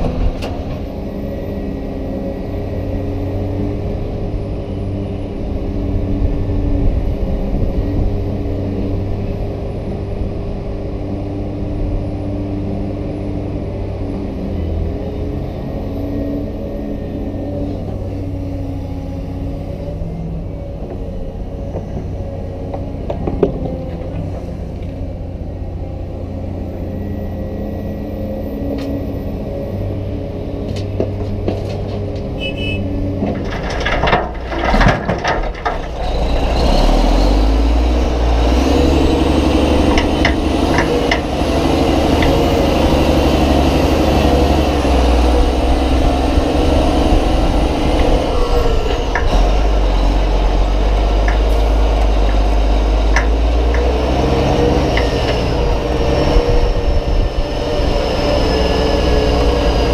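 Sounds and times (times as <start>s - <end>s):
excavator diesel engine running: 0.0s - 59.9s
heavy diesel engine running: 0.0s - 59.9s
dirt and rock clattering into truck bed: 33.2s - 36.6s.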